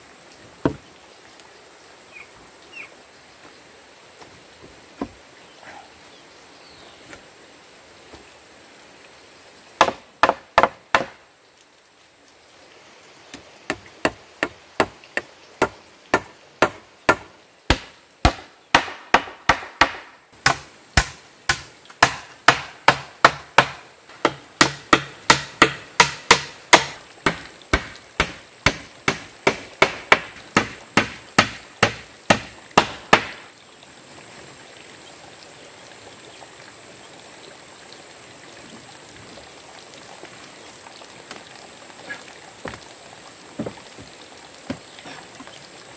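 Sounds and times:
hammer striking wood: 0:09.8 - 0:11.2, 0:15.6 - 0:33.4.

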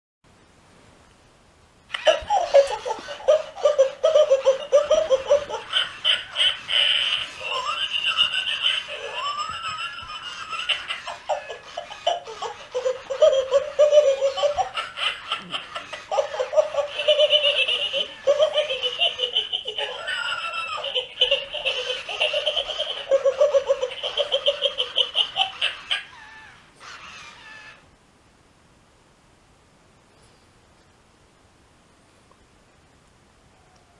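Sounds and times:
toy dog recorded laugh: 0:01.9 - 0:27.8.

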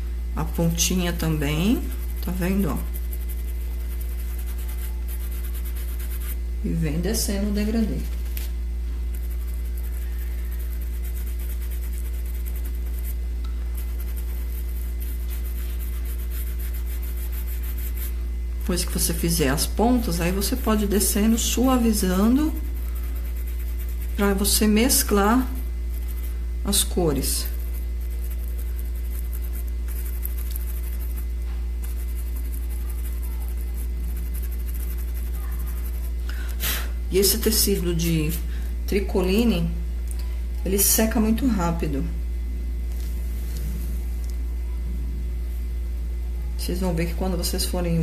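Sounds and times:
steady low hum: 0:00.0 - 0:48.0
paintbrush scratching through stencil: 0:00.4 - 0:06.5, 0:07.1 - 0:36.2
brush scrubbing on fabric: 0:00.7 - 0:06.4, 0:09.1 - 0:36.2.

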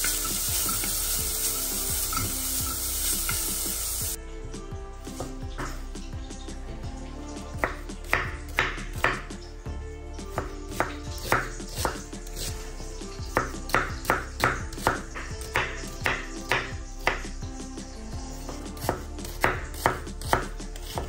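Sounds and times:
background music: 0:00.0 - 0:21.0
knife chopping on cutting board: 0:05.1 - 0:05.8, 0:07.6 - 0:09.3, 0:10.3 - 0:12.6, 0:13.3 - 0:17.3, 0:18.4 - 0:21.0.

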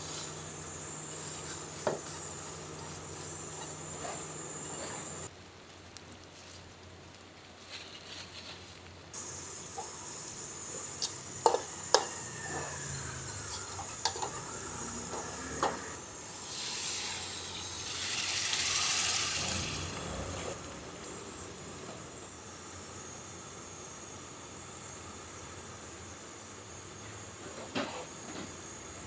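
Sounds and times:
metal ladle scraping a pan: 0:00.0 - 0:05.3, 0:11.0 - 0:19.5
food sizzling in a wok: 0:00.0 - 0:07.2, 0:09.1 - 0:29.0.

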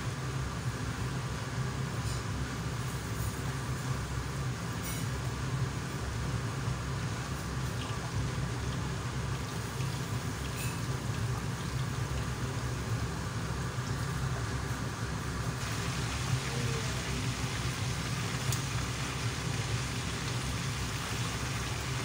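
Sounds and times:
meat sizzling in hot oil: 0:00.0 - 0:22.0
low steady hum: 0:05.7 - 0:22.0.

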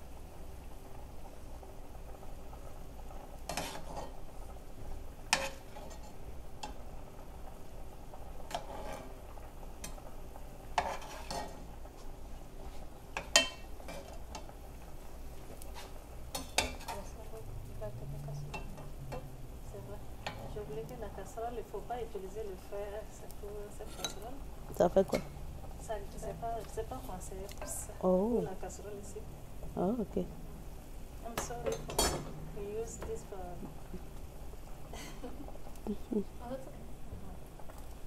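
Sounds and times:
metal spoon scraping pot: 0:08.5 - 0:09.1, 0:10.8 - 0:11.6, 0:23.8 - 0:24.3
metal clinking on pot: 0:13.2 - 0:14.5, 0:23.9 - 0:24.3, 0:31.4 - 0:32.4.

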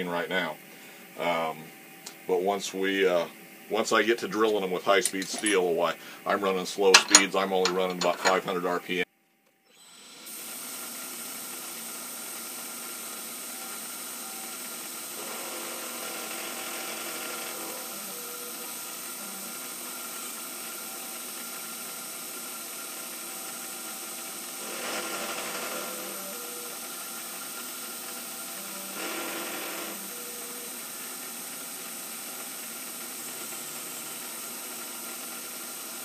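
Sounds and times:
milling machine whine: 0:00.0 - 0:09.0, 0:09.7 - 0:36.0
drill cutting steel: 0:09.7 - 0:36.0.

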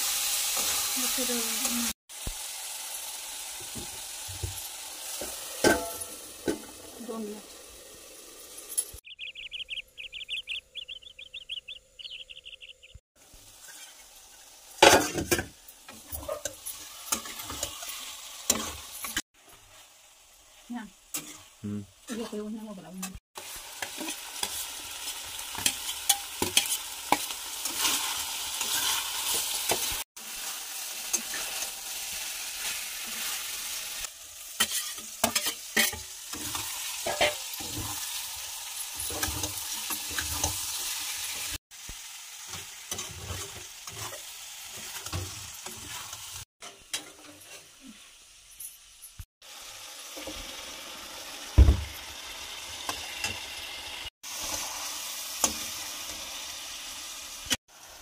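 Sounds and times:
curry sizzling in a wok: 0:00.0 - 0:58.0
metal spatula scraping a pan: 0:13.5 - 0:19.8, 0:21.1 - 0:23.2, 0:23.8 - 0:33.8, 0:34.5 - 0:41.5, 0:42.5 - 0:48.1.

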